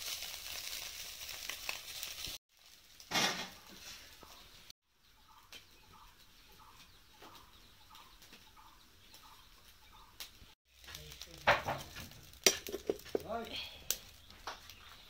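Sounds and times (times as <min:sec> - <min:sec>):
sticks clicking in fire: 0:10.2 - 0:13.2.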